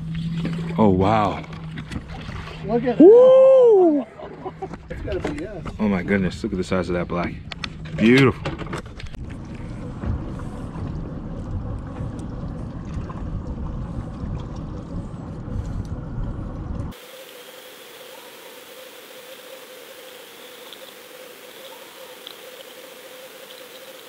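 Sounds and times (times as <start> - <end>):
wind and water noise: 0.0 - 24.0
faint steady hum: 9.4 - 24.0
muffled underwater hiss: 16.9 - 24.0.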